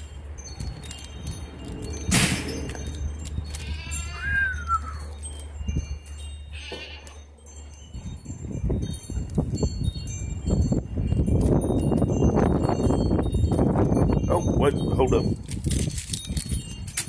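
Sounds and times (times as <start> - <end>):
wind chimes tinkling: 0.0 - 17.0
rising and falling squeak: 0.6 - 5.9.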